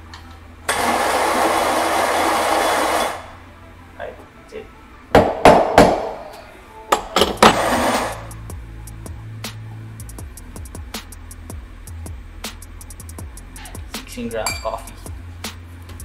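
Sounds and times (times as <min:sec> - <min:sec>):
coffee grinder running: 0:00.7 - 0:03.4, 0:07.4 - 0:08.3
portafilter knocking on knock box: 0:05.2 - 0:06.2.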